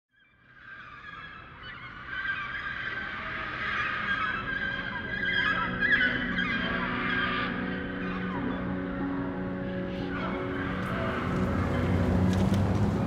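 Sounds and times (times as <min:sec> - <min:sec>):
flock of birds honking: 0:09.8 - 0:13.0.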